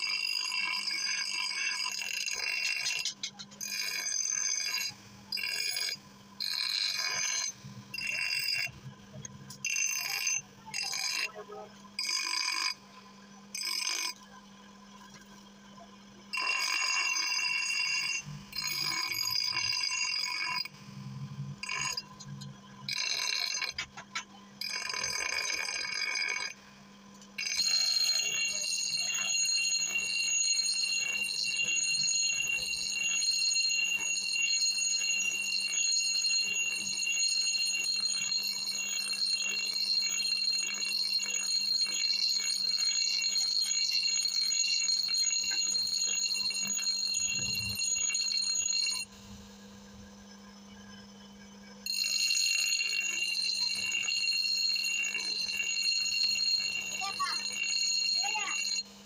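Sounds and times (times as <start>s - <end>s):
grinder wheel grinding steel: 27.4s - 49.1s, 51.9s - 58.8s
grinder motor hum: 27.4s - 51.1s, 51.9s - 58.8s.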